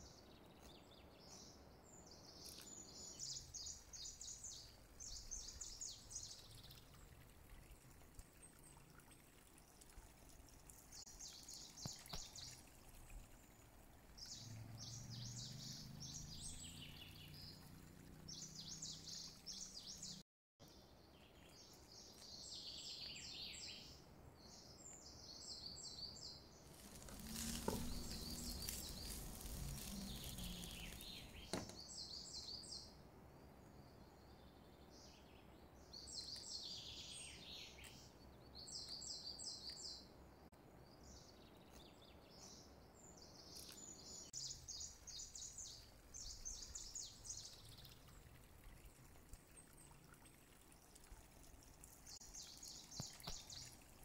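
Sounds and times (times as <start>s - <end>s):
oil sizzling in frying pan: 26.8s - 31.2s.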